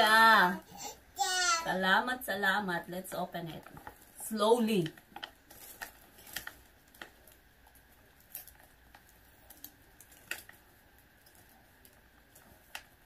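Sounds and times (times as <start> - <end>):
paper wrapping clicks: 4.7 - 13.0.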